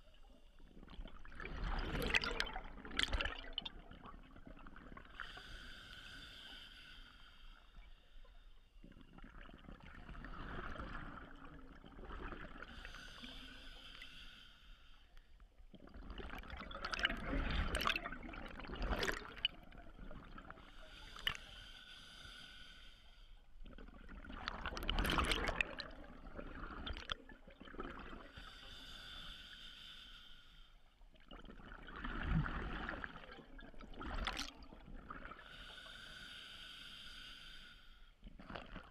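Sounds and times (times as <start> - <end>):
exhaled bubbles rushing: 1.0 - 5.0, 15.9 - 20.4, 23.7 - 28.3
regulator inhale hiss: 5.2 - 8.4, 12.7 - 15.4, 20.6 - 23.5, 28.4 - 30.8, 35.4 - 38.2.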